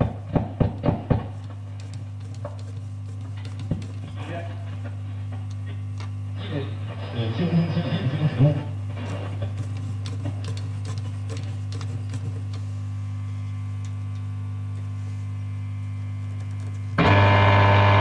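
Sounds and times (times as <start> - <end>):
radio mains hum: 0.0 - 18.0
noisy radio signal: 6.3 - 10.0.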